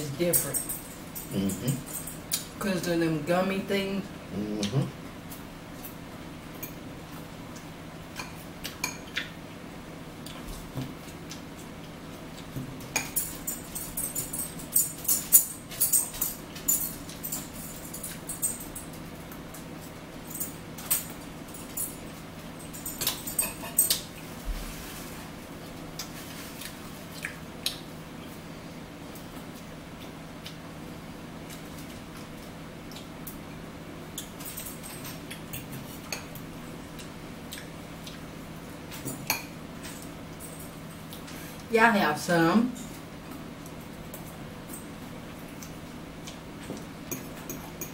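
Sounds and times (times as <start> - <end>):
low steady hum: 0.0 - 47.9
chewing and mouth smacks: 25.9 - 28.3, 36.9 - 38.3.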